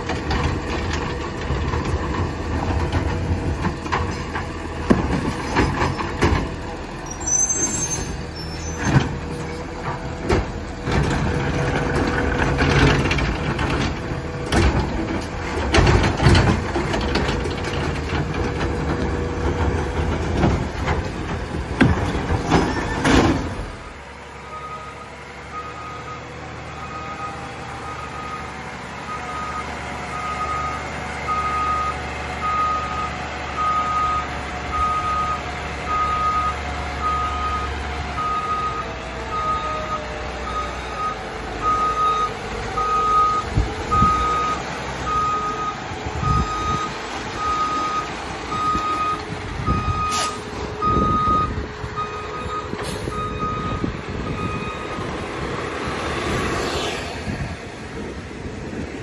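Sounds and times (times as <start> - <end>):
truck engine running: 0.0 - 56.5
truck backup alarm beeping: 23.7 - 55.5.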